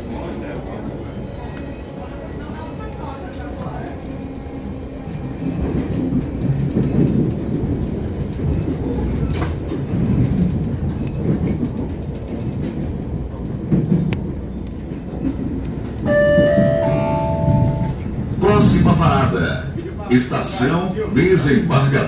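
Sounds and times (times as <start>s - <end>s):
train wheels rumbling on rails: 0.0s - 22.0s
clickety-clack over rail joints: 3.2s - 20.1s.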